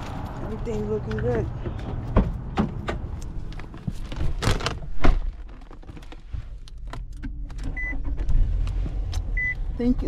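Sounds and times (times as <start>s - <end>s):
thumps and rustling in car seat: 1.3s - 7.0s.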